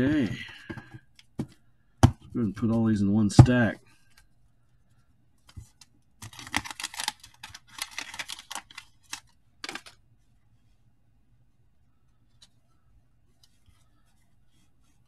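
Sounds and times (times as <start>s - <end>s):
cards rustling and clicking: 5.4s - 10.0s.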